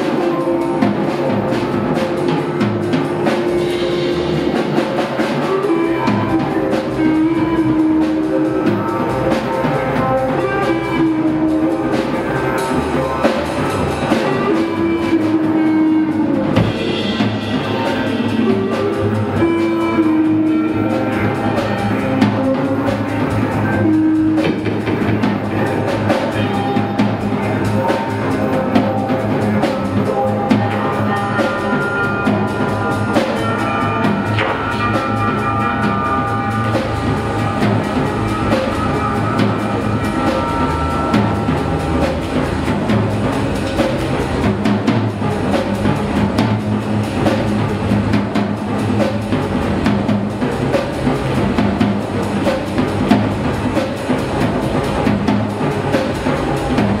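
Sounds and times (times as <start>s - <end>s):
drum kit beat: 0.0s - 57.0s
electric guitars: 0.0s - 57.0s
rock band playing: 0.0s - 57.0s.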